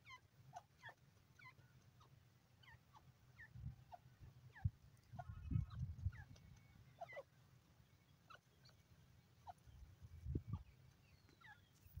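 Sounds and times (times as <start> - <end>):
short bird calls: 8.0 - 12.0.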